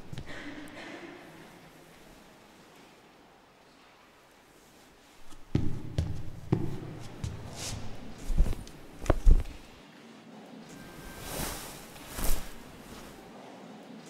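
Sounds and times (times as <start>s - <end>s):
footsteps on stage floor: 5.2s - 9.8s.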